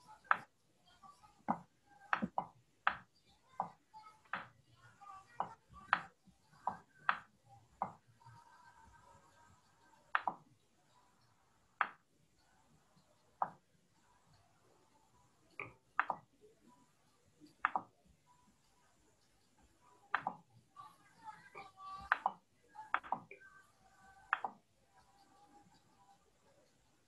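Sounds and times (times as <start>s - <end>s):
faint background murmur: 0.0s - 27.0s
sharp irregular taps: 1.5s - 4.5s.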